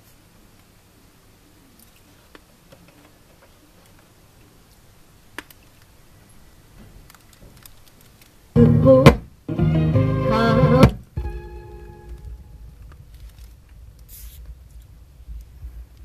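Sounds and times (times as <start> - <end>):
record hiss: 0.0 - 16.0
record player clicks: 5.3 - 5.9
music from record: 8.6 - 13.0.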